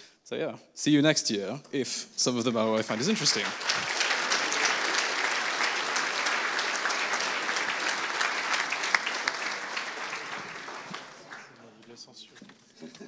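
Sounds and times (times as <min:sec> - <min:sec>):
audience applauding: 0:02.6 - 0:11.8.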